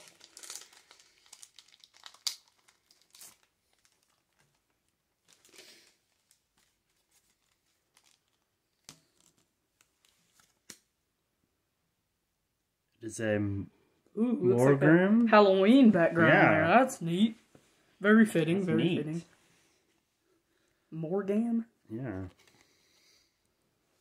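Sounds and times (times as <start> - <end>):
foil wrapper tearing and crinkling: 0.0 - 9.5.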